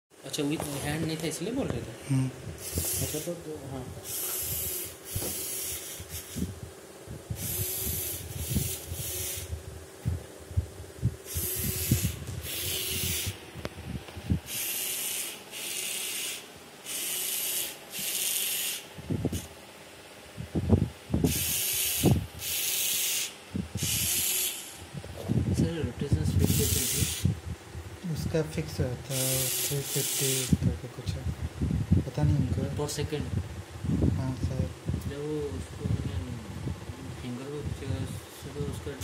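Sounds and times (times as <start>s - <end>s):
servo motors buzzing: 2.6s - 6.6s, 7.3s - 9.6s, 11.2s - 13.7s, 14.3s - 19.6s, 21.2s - 25.4s, 26.3s - 27.4s, 29.1s - 30.7s.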